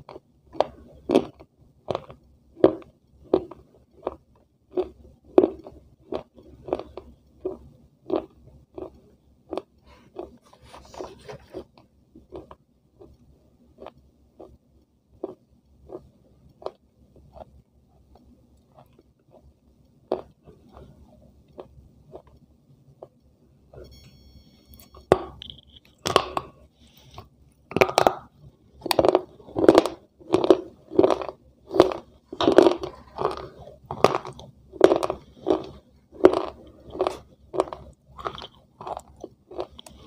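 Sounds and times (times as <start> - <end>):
close-up crunchy chewing: 0.0 - 13.2, 13.8 - 14.6, 25.8 - 40.0.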